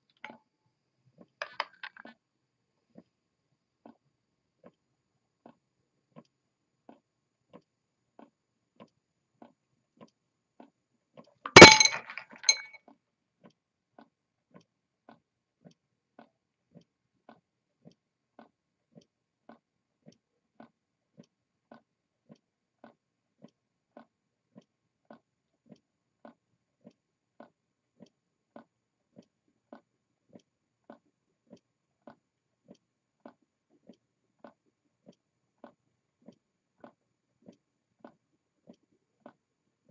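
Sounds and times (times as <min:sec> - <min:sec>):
sharp metallic clink: 0:11.5 - 0:12.8.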